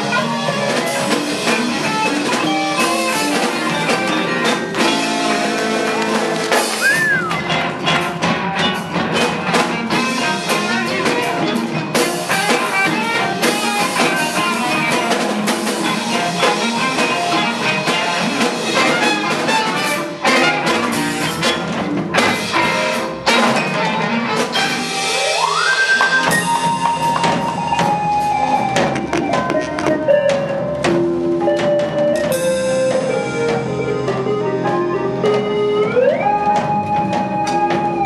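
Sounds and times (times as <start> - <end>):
live band playing: 0.0 - 38.0.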